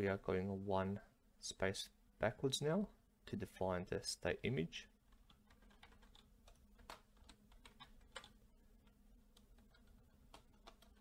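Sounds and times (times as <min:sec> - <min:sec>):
faint steady hum: 0:00.0 - 0:11.0
keyboard keystrokes clicking: 0:05.3 - 0:08.4, 0:09.3 - 0:11.0.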